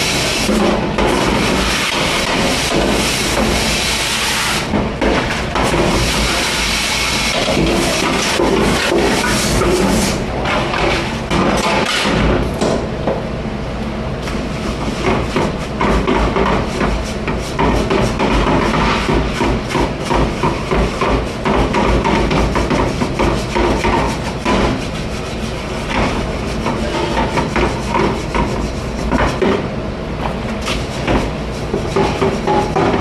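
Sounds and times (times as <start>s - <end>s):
steady machine hum: 0.0s - 33.0s.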